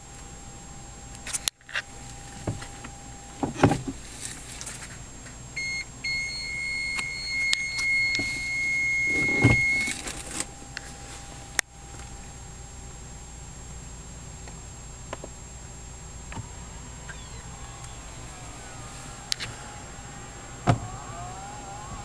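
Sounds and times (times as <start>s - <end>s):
high electronic beep: 5.6s - 10.0s.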